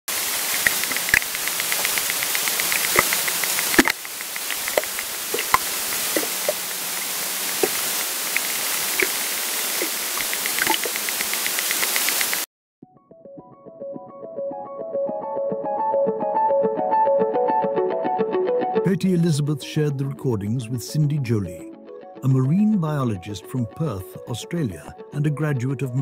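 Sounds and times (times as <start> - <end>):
underwater hiss: 0.1 - 12.4
scattered louder pops: 0.5 - 9.2, 9.8 - 12.4
rapid trains of clicks: 0.6 - 5.6, 10.2 - 12.4.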